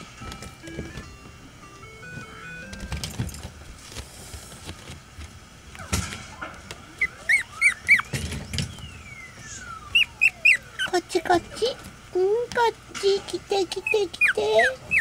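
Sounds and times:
puppy whimpering squeaks: 7.0 - 8.1, 9.8 - 11.0, 13.8 - 15.0.

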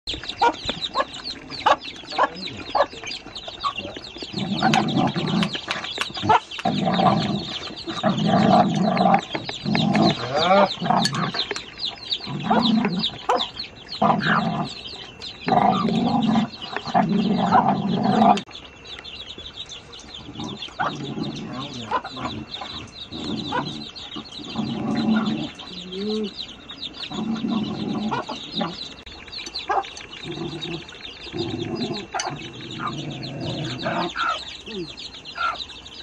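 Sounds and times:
chickens clucking: 0.1 - 36.0
chicks peeping: 0.1 - 36.0.

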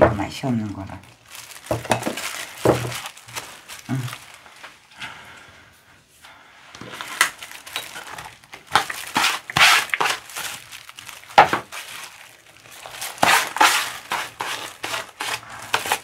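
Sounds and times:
food rustling and scraping in bowl: 1.4 - 3.5, 6.8 - 16.0.

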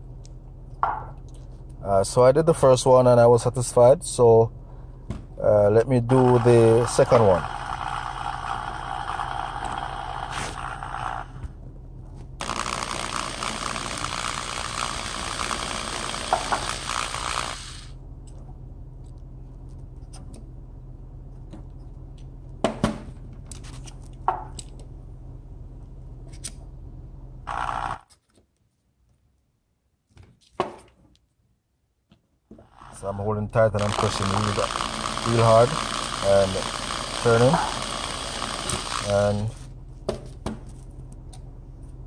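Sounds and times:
low steady hum: 0.0 - 42.0
power drill running: 6.0 - 11.5, 12.4 - 18.0, 27.5 - 28.0, 32.6 - 39.6.

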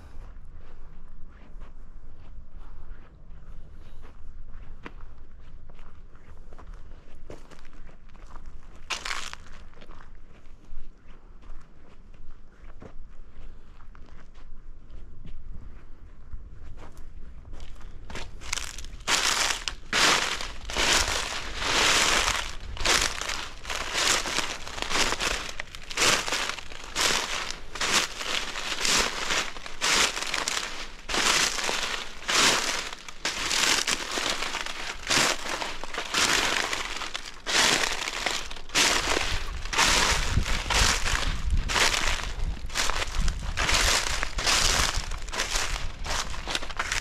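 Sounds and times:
footsteps on dry leaves: 7.3 - 10.0, 17.6 - 47.0.

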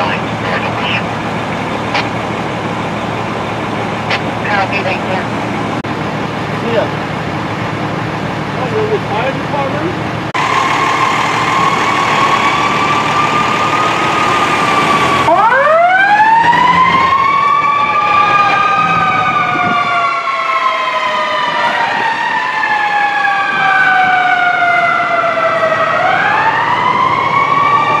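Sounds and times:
wailing sirens: 0.0 - 9.1, 9.9 - 28.0
steady high siren tone: 10.3 - 28.0.

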